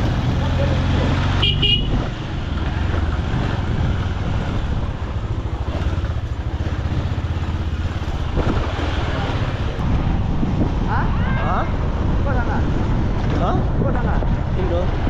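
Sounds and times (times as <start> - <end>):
motorcycle engine running: 0.0 - 9.8.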